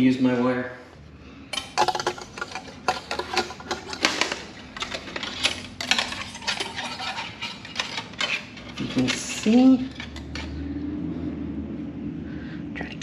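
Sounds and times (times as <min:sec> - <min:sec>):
wire clicking and scraping on plastic: 0:01.6 - 0:10.6.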